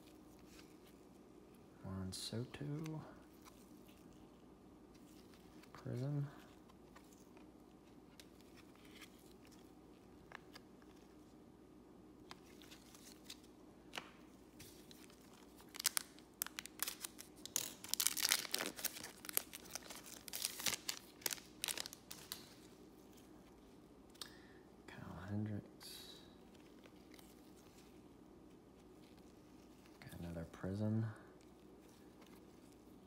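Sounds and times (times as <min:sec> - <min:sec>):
foil wrapper tearing and crinkling: 0:15.5 - 0:22.5.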